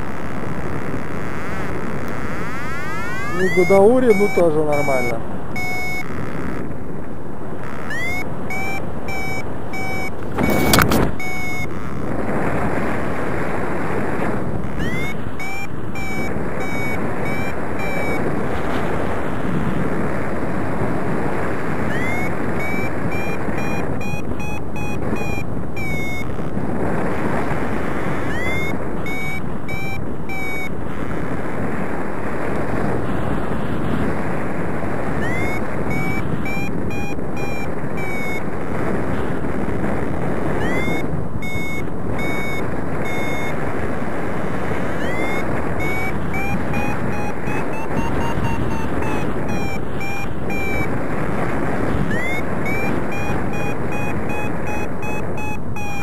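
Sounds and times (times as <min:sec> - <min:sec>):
variometer beeping: 0:00.0 - 0:06.8, 0:07.6 - 0:12.4, 0:14.5 - 0:19.0, 0:21.8 - 0:26.6, 0:28.0 - 0:31.0, 0:35.2 - 0:38.6, 0:40.6 - 0:43.7, 0:44.7 - 0:51.2, 0:51.8 - 0:56.0
wind rushing over microphone: 0:00.0 - 0:56.0.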